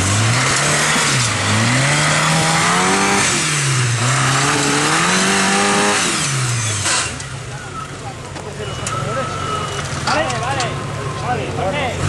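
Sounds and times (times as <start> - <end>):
off-road vehicle engine revving: 0.0 - 8.1.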